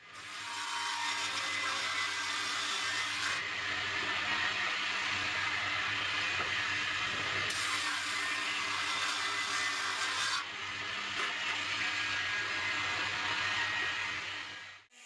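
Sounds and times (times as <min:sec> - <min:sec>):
bandsaw running: 0:07.4 - 0:10.4.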